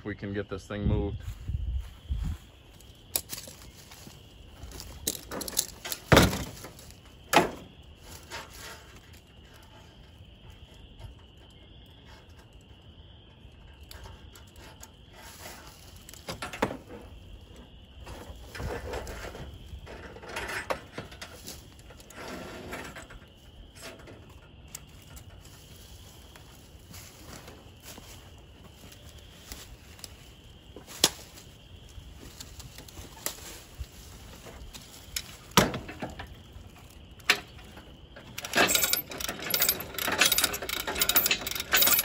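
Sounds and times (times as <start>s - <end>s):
metal clicks and clatter: 4.7s - 6.7s, 37.2s - 42.0s
footsteps in dry leaves: 25.5s - 35.5s.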